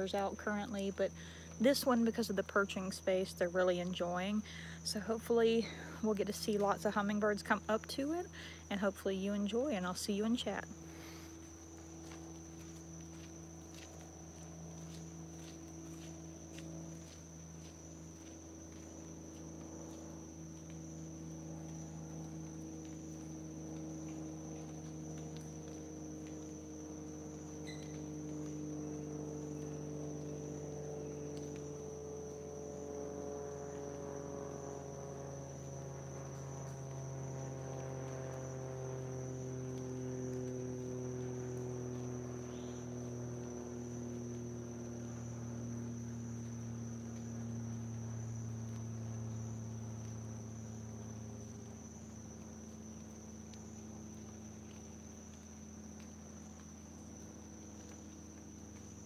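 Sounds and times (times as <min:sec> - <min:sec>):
insects trilling: 0:00.0 - 0:59.0
low droning hum: 0:00.0 - 0:59.0.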